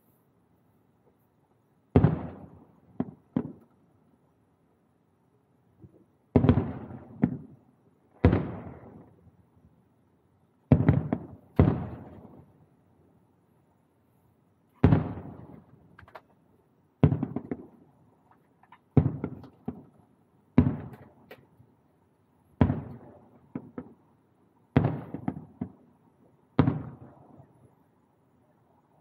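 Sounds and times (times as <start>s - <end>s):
firework shells booming: 2.0s - 3.6s, 10.7s - 12.3s, 14.8s - 15.7s, 17.0s - 17.8s, 18.9s - 20.0s, 20.6s - 21.4s, 22.6s - 24.0s, 24.8s - 25.8s.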